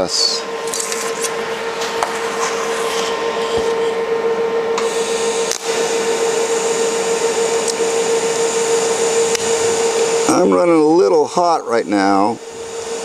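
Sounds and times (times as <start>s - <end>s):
constant welder hum: 0.0s - 13.0s
welding arc hissing: 4.8s - 13.0s.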